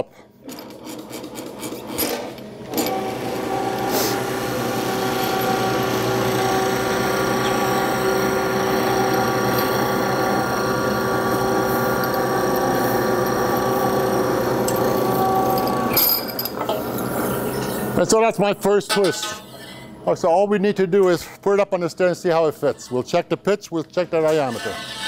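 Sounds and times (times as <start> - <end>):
roll bender machine hum: 0.6 - 18.0
metal tube rasping in rollers: 0.7 - 17.9.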